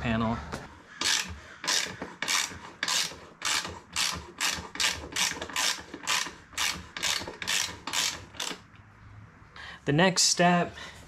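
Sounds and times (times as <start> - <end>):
ratchet wrench clicking: 1.0 - 8.7.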